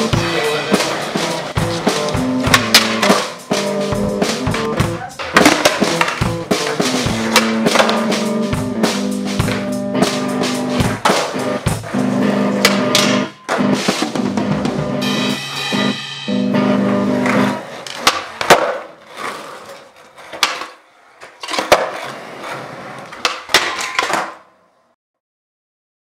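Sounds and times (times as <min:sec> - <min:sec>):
skateboard wheels rolling on concrete: 0:00.0 - 0:15.0, 0:16.7 - 0:24.8
band music with drum kit: 0:00.0 - 0:18.6
skateboard clacks: 0:00.1 - 0:14.4, 0:16.9 - 0:24.5.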